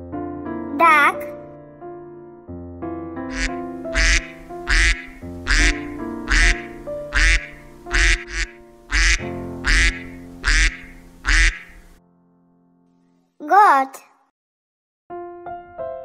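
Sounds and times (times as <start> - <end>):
duck quacking loudly: 3.3 - 11.9
light background music: 3.3 - 12.0.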